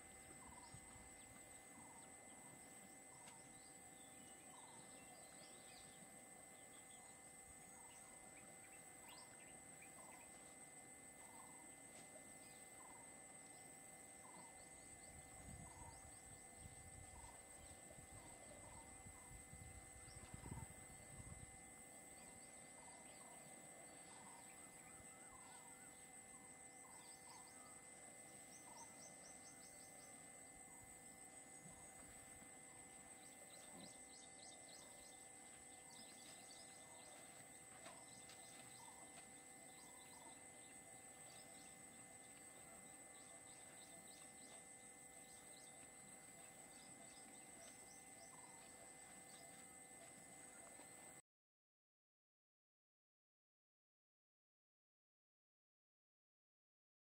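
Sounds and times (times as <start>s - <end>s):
high-pitched insect drone: 0.0s - 51.2s
steady high hum: 0.0s - 51.2s
faint bird chirps: 22.1s - 30.9s.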